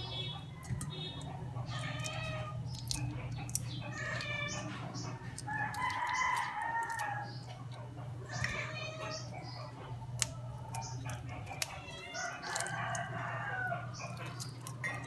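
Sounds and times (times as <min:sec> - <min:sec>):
low steady hum: 0:00.0 - 0:15.0
roosters crowing: 0:03.8 - 0:15.0.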